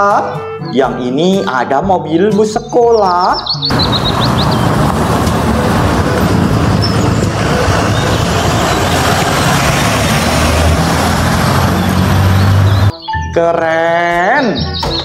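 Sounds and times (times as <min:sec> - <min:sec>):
traffic noise: 0:03.1 - 0:12.9
bus diesel engine passing: 0:03.7 - 0:12.9.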